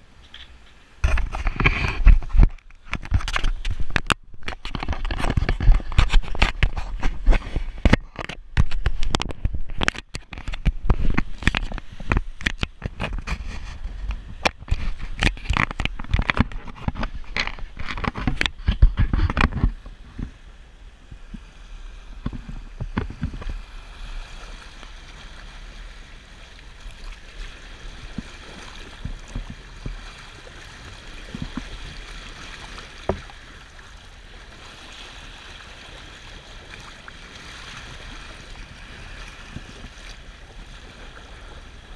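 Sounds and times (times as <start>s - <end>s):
water rushing along boat hull: 0.0s - 41.9s
camera handling knocks and rubbing: 0.3s - 20.3s, 22.2s - 23.5s.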